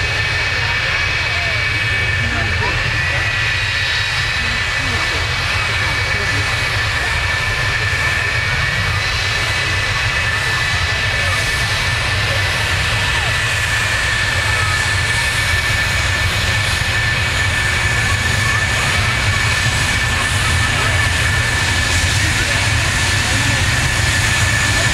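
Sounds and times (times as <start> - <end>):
jet engines whining: 0.0 - 24.9
low engine rumble: 0.0 - 24.9.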